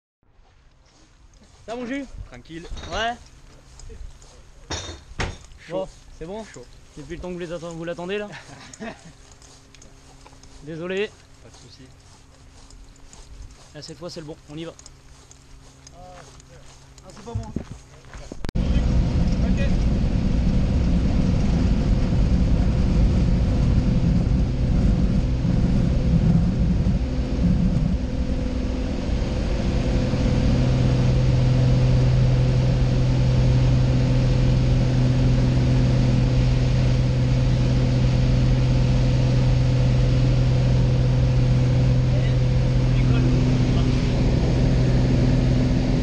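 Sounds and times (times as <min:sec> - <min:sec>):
propeller plane engine: 0:05.3 - 0:17.3, 0:18.6 - 0:46.0.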